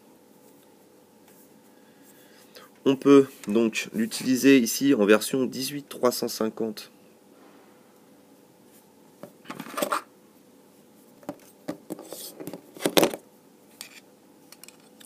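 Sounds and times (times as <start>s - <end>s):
metal scraping on tabletop: 11.9s - 12.5s.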